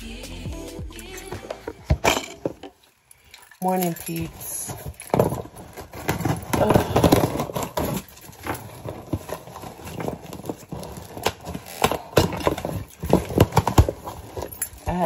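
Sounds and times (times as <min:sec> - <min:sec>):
knocks and clatter on a table: 0:05.0 - 0:14.8.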